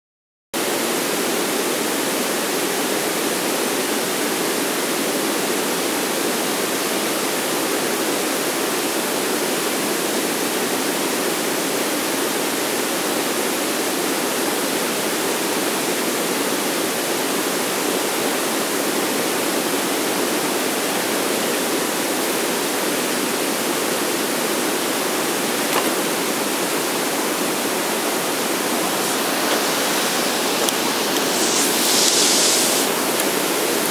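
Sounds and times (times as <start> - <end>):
steady rushing noise: 27.6 - 33.9.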